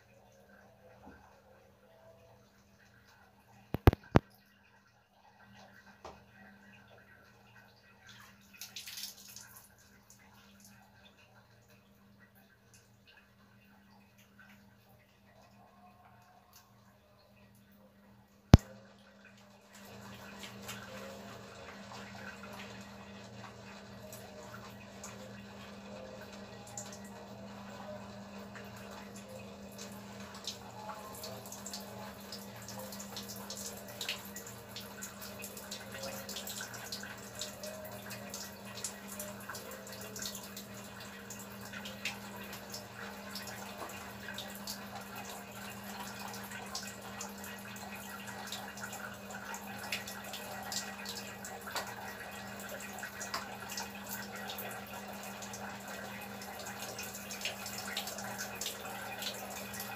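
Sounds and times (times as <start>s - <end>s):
water running from a tap: 7.9s - 11.4s, 19.8s - 59.9s.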